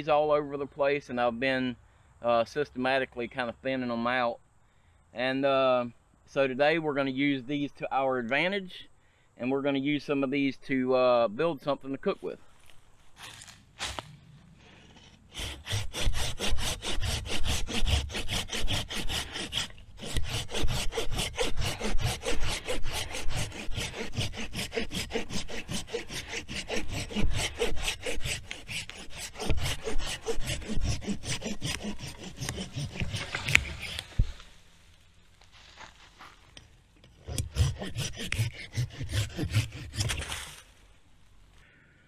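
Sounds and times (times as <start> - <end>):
pruning saw cutting wood: 14.6 - 34.7, 36.6 - 40.8.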